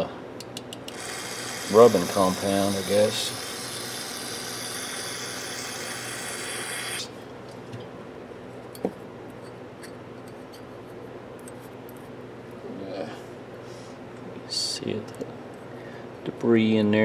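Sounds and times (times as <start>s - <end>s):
aerosol spray hissing: 0.9s - 7.1s.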